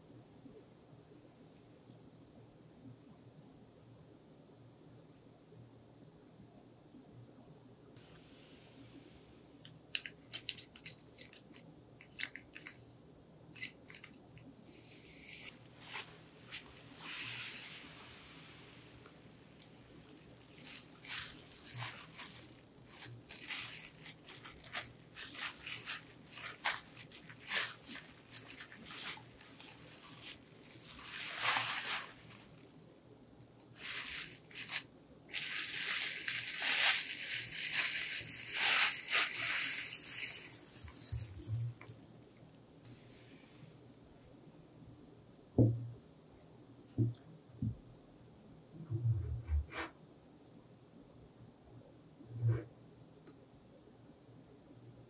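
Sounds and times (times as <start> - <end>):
bubble wrap crinkling: 10.0 - 12.8, 13.6 - 14.2, 14.8 - 32.8, 33.6 - 42.4.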